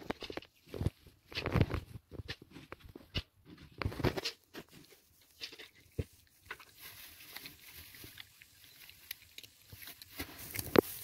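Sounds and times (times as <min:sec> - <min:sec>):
dog crunching dry kibble: 0:03.9 - 0:11.0.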